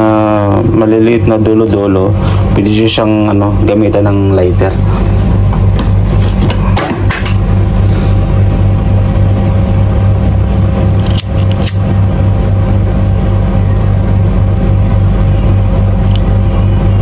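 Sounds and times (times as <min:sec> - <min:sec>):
loud low hum: 0:00.0 - 0:17.0
pocket lighter striking: 0:11.0 - 0:11.8
scissors snipping line: 0:11.0 - 0:11.8.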